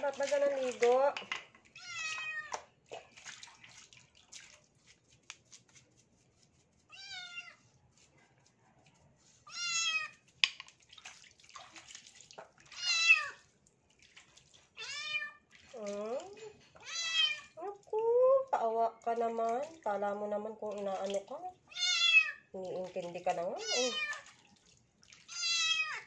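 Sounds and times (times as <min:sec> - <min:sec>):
brush scrubbing: 0:00.0 - 0:01.0, 0:03.6 - 0:10.4
faint splashing: 0:00.0 - 0:26.0
kitten meowing: 0:12.8 - 0:13.4, 0:16.8 - 0:17.5, 0:21.7 - 0:22.4, 0:25.3 - 0:26.0.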